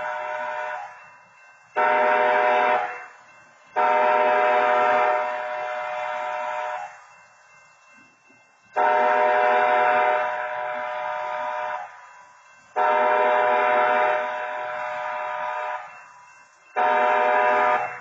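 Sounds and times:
train horn blasts: 0.0 - 0.9, 1.8 - 3.1, 3.8 - 6.9, 8.8 - 12.0, 12.8 - 15.9, 16.8 - 18.0.

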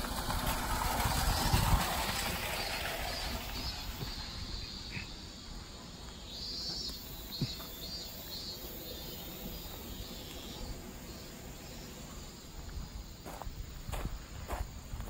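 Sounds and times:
low outdoor rumble: 0.0 - 8.0
insects chirping in pulses: 1.1 - 15.0.

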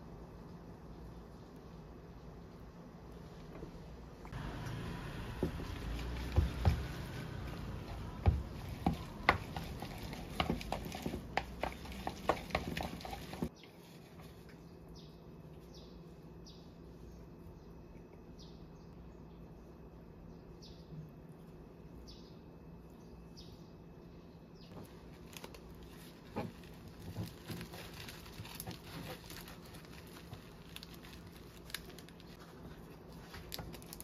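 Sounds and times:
wet squishing of noodles: 5.4 - 13.5, 24.8 - 34.0.

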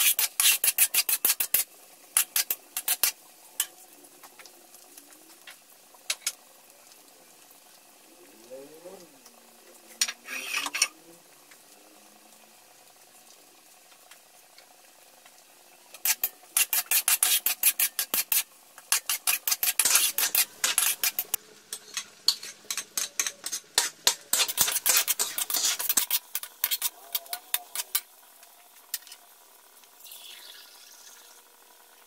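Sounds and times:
metal spatula scraping wok: 0.0 - 3.7, 10.0 - 11.0, 15.9 - 28.1, 28.9 - 29.2.

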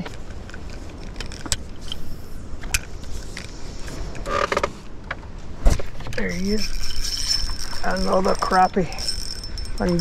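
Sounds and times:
reel creak: 0.0 - 5.0, 6.0 - 10.0
fishing reel cranking: 6.2 - 10.0.

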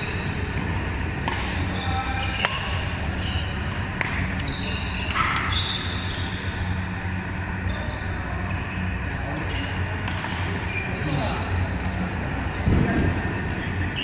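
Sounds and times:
shoes squeaking on court: 0.0 - 6.9, 7.6 - 14.0
racket hitting shuttlecock: 1.2 - 1.6, 3.7 - 4.4, 5.0 - 5.5, 10.0 - 10.6.

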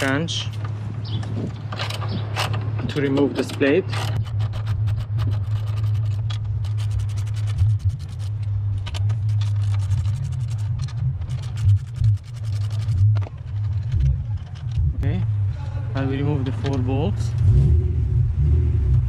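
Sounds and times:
steady low hum: 0.0 - 19.0
tool scrapes: 3.4 - 8.5
ratchet wrench clicking: 3.4 - 13.0.

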